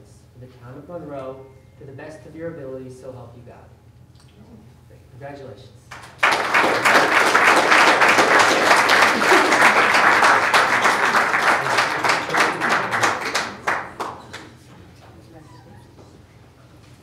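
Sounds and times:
audience applauding: 0:05.9 - 0:14.7.

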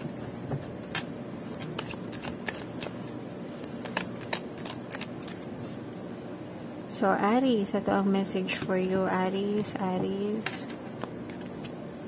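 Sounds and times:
cards sliding while shuffled: 0:00.3 - 0:05.8
card edges clicking: 0:01.4 - 0:03.0, 0:03.6 - 0:05.4.

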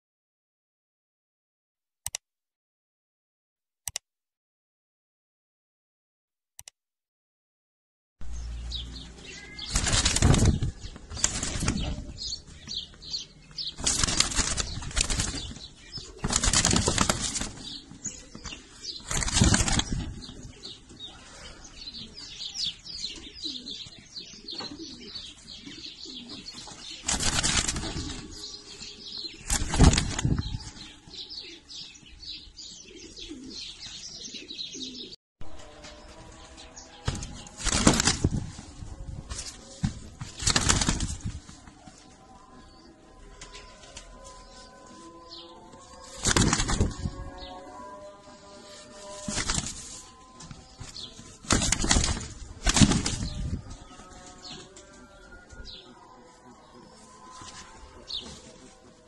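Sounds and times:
faint bird chirps: 0:08.8 - 0:10.4
pigeon wings flapping: 0:09.6 - 0:12.2, 0:13.6 - 0:20.5, 0:26.8 - 0:28.5, 0:29.2 - 0:30.6, 0:37.1 - 0:41.8, 0:46.0 - 0:47.2, 0:49.2 - 0:50.0, 0:50.8 - 0:53.6.

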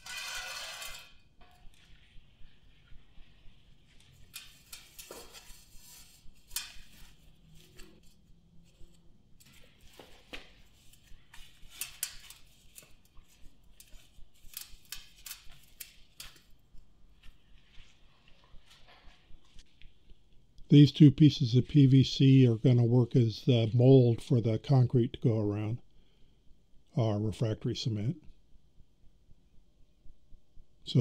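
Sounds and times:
sharp little ticks and scrapes: 0:10.9 - 0:16.5.

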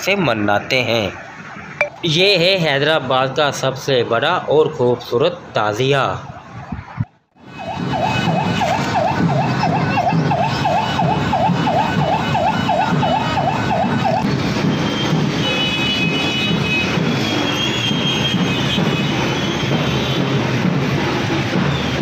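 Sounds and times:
street crowd din: 0:00.0 - 0:22.0
warbling siren-like tone: 0:06.6 - 0:14.3.

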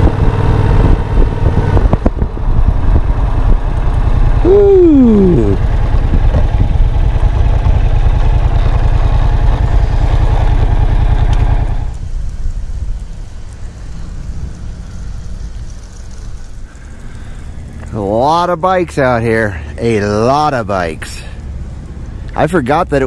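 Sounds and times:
motorcycle engine revving: 0:00.0 - 0:12.0
motorcycle engine running: 0:00.0 - 0:22.3.

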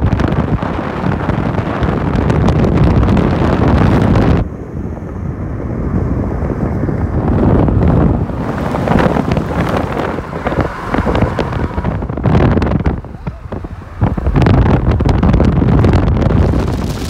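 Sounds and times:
car road and engine rumble: 0:00.0 - 0:17.0
wind buffeting microphone: 0:00.0 - 0:17.0.

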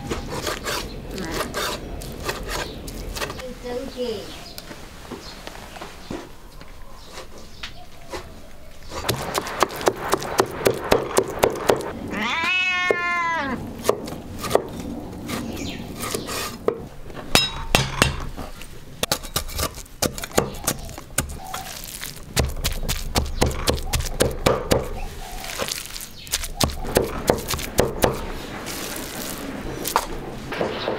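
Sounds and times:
cat meowing: 0:12.1 - 0:13.6.

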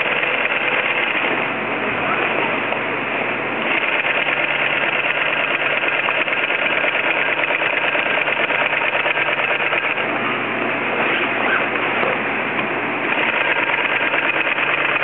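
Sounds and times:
industrial sewing machine clatter: 0:00.0 - 0:01.4, 0:03.6 - 0:10.1, 0:13.1 - 0:15.0.

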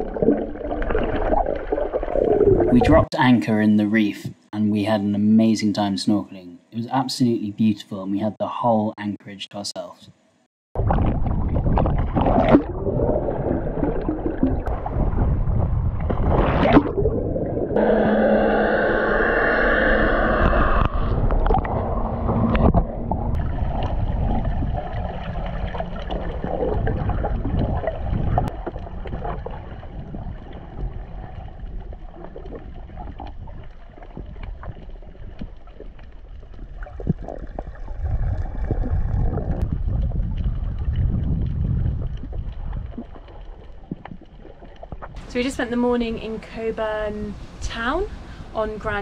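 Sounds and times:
muffled underwater rumble: 0:00.0 - 0:03.1, 0:10.8 - 0:49.0
water gurgling: 0:00.0 - 0:03.4, 0:10.8 - 0:47.0
loud steady hum: 0:17.6 - 0:28.5
underwater clicks: 0:20.3 - 0:45.3.

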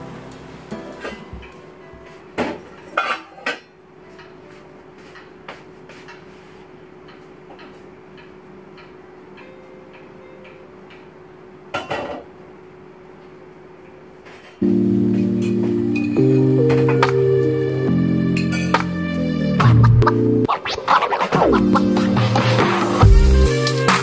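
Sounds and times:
dishes and utensils clattering: 0:02.4 - 0:04.3, 0:11.8 - 0:12.3, 0:18.4 - 0:18.9.

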